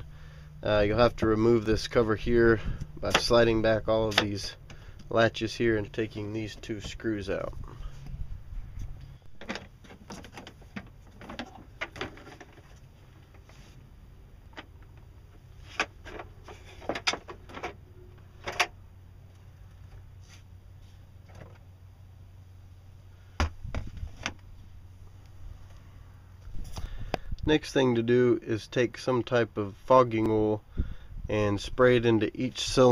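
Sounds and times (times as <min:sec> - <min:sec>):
low steady hum: 0:00.0 - 0:32.9.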